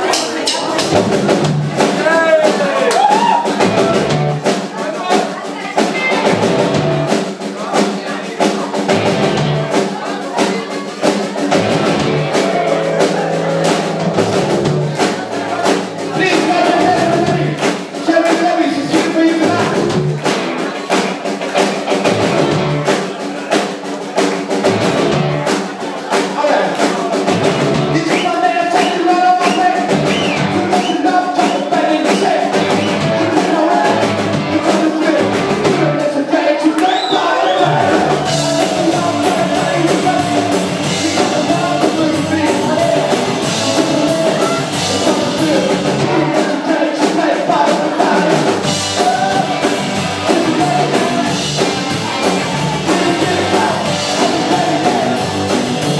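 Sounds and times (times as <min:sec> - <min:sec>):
bass guitar: 0:00.0 - 0:07.4, 0:08.8 - 0:23.2, 0:24.1 - 0:36.1, 0:37.2 - 0:55.9
drums: 0:00.0 - 0:55.9
electric guitar: 0:05.8 - 0:07.3, 0:08.9 - 0:10.0, 0:11.0 - 0:17.8, 0:19.0 - 0:23.1, 0:24.4 - 0:25.7, 0:29.8 - 0:36.0, 0:37.6 - 0:46.7, 0:47.6 - 0:55.9.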